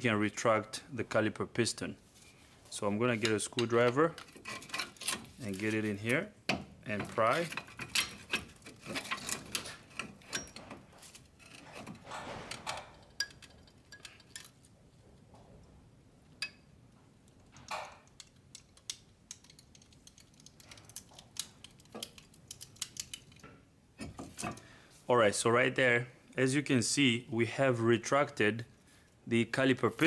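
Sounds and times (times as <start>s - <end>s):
screwdriver clicking and scraping metal: 3.2s - 6.1s, 6.9s - 14.7s, 17.5s - 24.6s.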